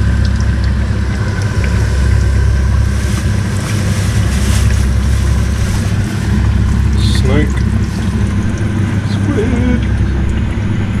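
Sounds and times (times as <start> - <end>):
fish deep-frying in oil: 0.0 - 11.0
steady low hum: 0.0 - 11.0.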